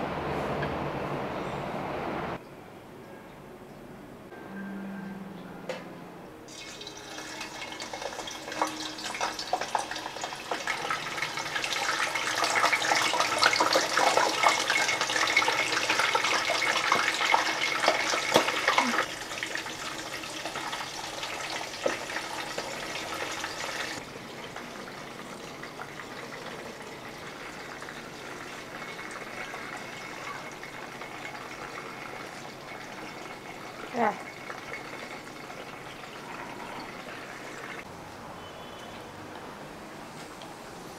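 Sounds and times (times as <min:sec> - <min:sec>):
oil crackles and pops: 0:06.5 - 0:36.0
meat deep-frying in oil: 0:06.5 - 0:37.9.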